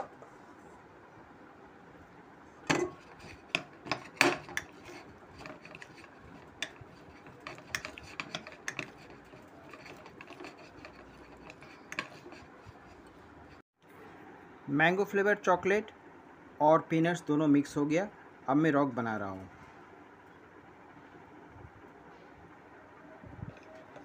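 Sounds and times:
spoon clinking and scraping glass bowl: 0:02.7 - 0:13.6.

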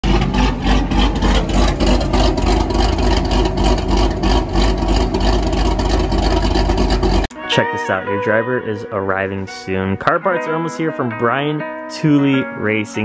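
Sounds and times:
car engine idling with choppy lope: 0:00.0 - 0:07.3.

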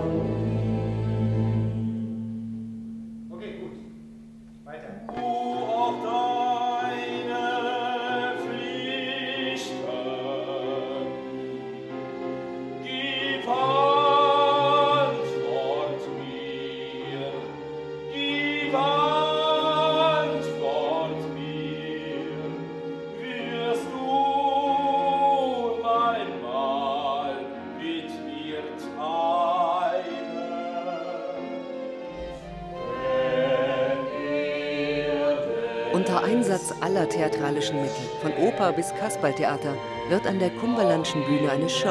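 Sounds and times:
sustained instrumental accompaniment: 0:00.0 - 0:41.9
operatic singing with vibrato: 0:05.1 - 0:41.9.

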